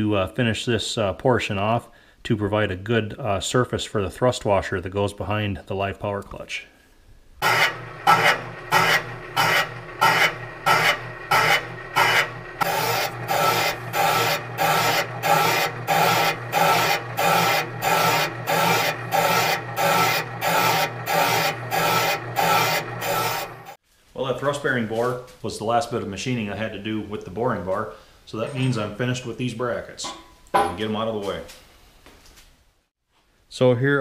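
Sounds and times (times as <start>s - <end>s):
cutter bit rasping scrape on metal: 7.4s - 23.8s.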